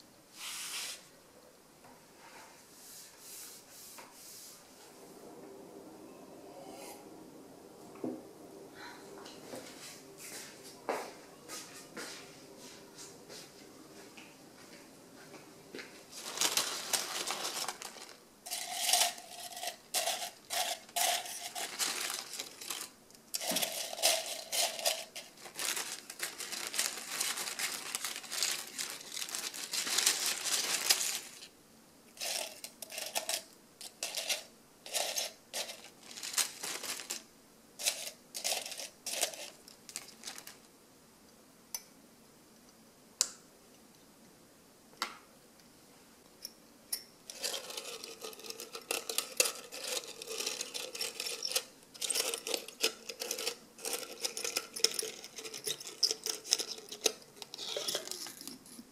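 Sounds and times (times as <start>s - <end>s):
leaves and plastic bag crinkling: 16.1s - 31.5s, 32.2s - 40.7s, 47.3s - 58.8s.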